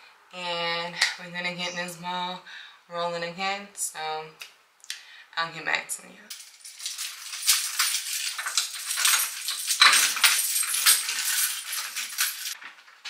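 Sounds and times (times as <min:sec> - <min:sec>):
keys jangling against a lock: 0:06.3 - 0:12.6.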